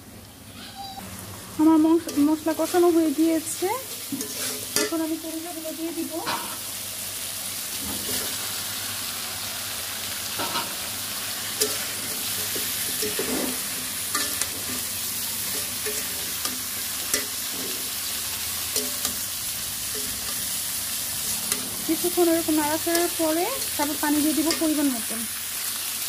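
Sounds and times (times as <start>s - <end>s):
meat sizzling in oil: 0.3s - 26.0s
metal spatula scraping pan: 4.0s - 5.0s, 11.6s - 20.6s.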